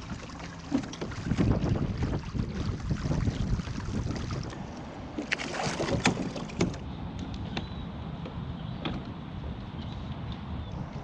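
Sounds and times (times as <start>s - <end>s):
water along hull: 0.0s - 11.0s
wind on microphone: 0.9s - 4.8s.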